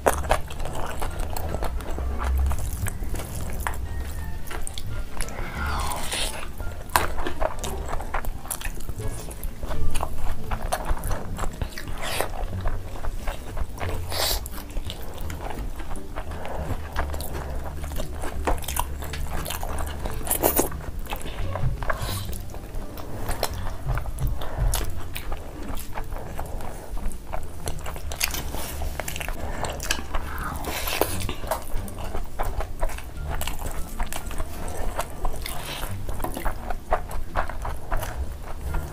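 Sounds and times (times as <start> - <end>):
people chewing food: 0.0 - 38.9.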